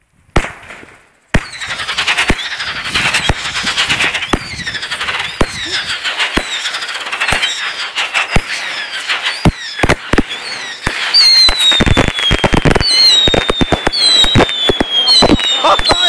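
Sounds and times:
fireworks bangs and crackles: 0.0s - 16.0s
whistling fireworks: 0.0s - 16.0s.

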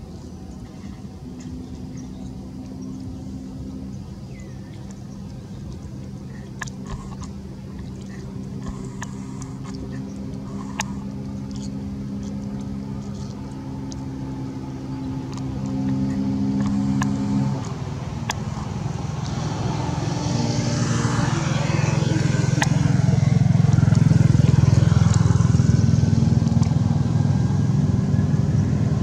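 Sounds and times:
engine running with low drone: 0.0s - 29.0s
sharp small clicks: 4.3s - 20.4s, 26.2s - 26.9s.

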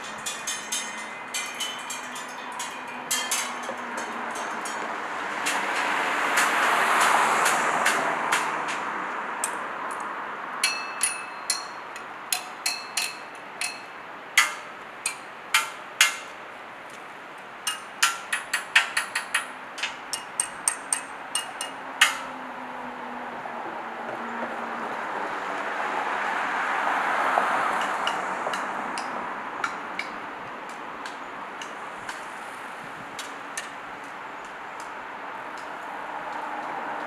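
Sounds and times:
rod striking metal handrail: 0.0s - 8.5s, 10.6s - 16.4s, 17.7s - 22.3s
car passing: 2.3s - 11.4s, 21.2s - 31.0s, 35.0s - 37.0s.

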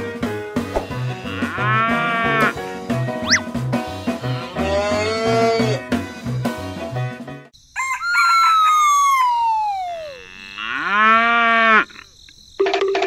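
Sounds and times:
background music: 0.0s - 7.5s
cow mooing: 0.8s - 2.6s, 4.2s - 5.8s, 10.1s - 12.0s
rooster crowing: 7.7s - 11.4s.

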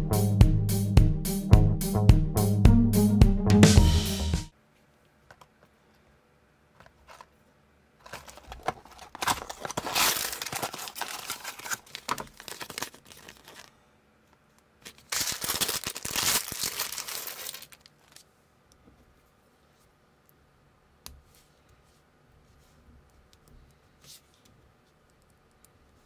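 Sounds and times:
cardboard box opening: 8.0s - 13.7s
plastic bag tearing open: 8.0s - 13.7s, 14.8s - 18.2s
plastic bag crinkling: 8.0s - 13.8s, 14.8s - 18.2s.

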